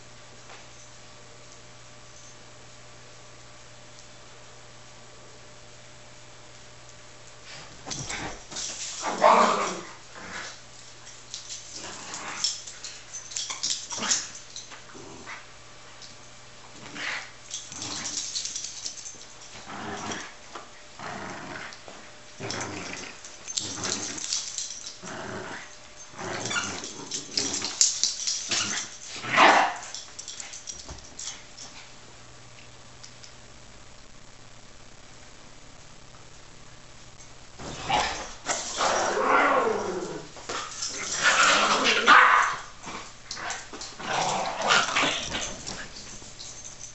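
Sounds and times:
small dogs growling and barking: 7.5 - 10.6, 11.3 - 15.5, 16.8 - 31.8, 37.6 - 46.8.

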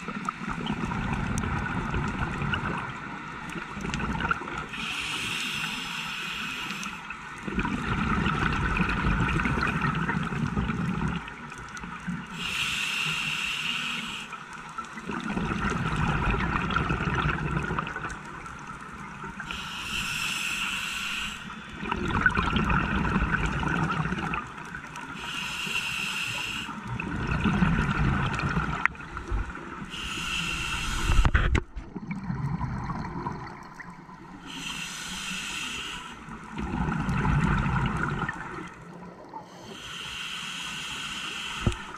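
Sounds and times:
regulator inhalation hiss: 4.7 - 7.1, 12.3 - 14.4, 19.4 - 21.8, 25.1 - 26.8, 29.9 - 31.5, 34.4 - 36.4, 39.5 - 41.9
bubbling exhalation: 36.5 - 38.7.

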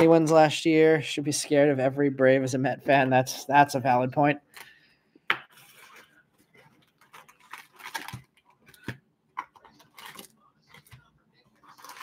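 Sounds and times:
foil packs crinkling: 6.8 - 9.0, 9.6 - 11.0, 11.6 - 12.0.

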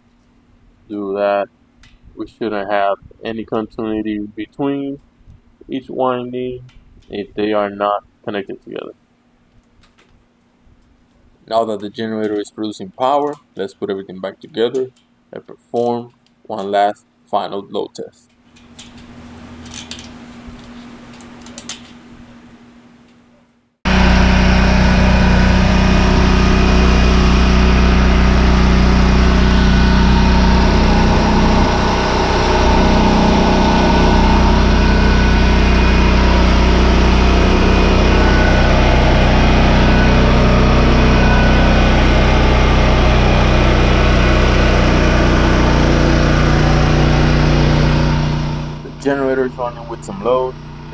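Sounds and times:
generator engine running: 23.8 - 50.9
low hum: 23.8 - 50.9.

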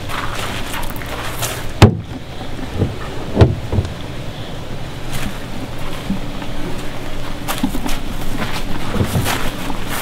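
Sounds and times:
wind noise on microphone: 1.1 - 10.0
plastic pipe knocking on plastic tank: 1.8 - 4.0.

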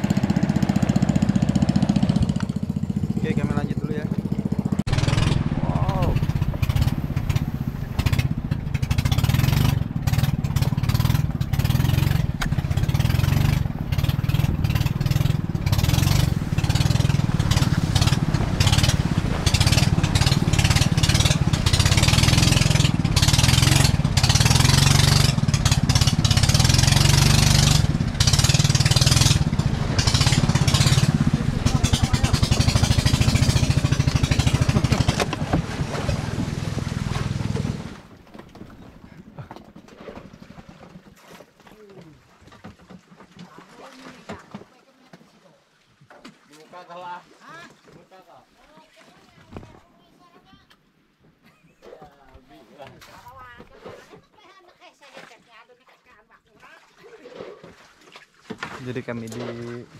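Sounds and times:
boat engine droning: 0.0 - 40.6.

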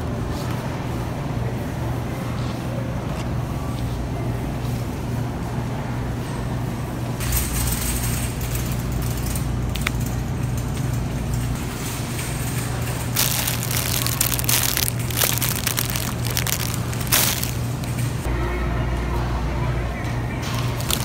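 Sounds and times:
crackling noise: 11.7 - 18.3, 20.7 - 21.0.

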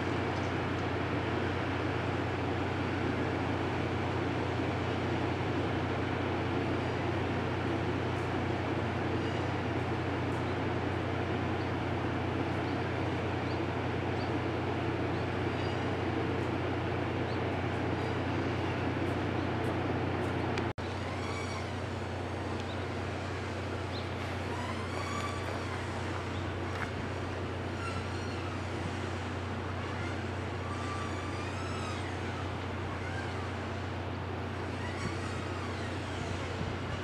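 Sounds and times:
mechanical hum: 0.0 - 37.0.

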